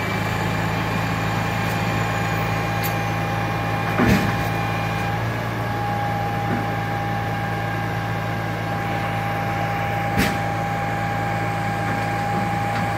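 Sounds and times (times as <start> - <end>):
diesel engine running: 0.0 - 12.9.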